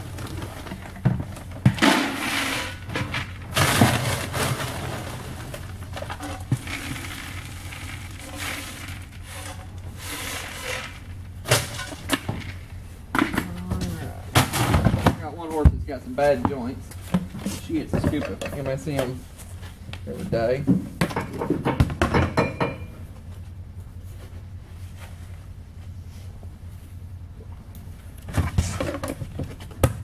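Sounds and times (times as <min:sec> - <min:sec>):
pellets pouring into bucket: 0:03.6 - 0:11.0.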